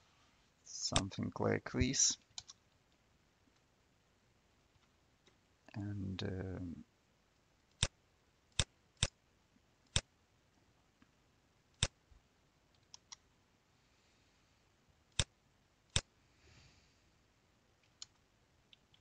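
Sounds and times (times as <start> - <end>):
computer mouse clicking: 2.3 - 2.6, 12.8 - 13.2, 17.8 - 19.0.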